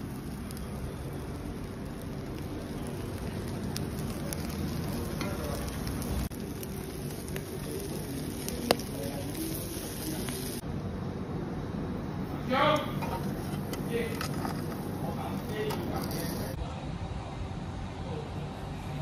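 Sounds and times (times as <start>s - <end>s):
fish sizzling on grill: 0.0s - 10.6s, 12.6s - 16.6s.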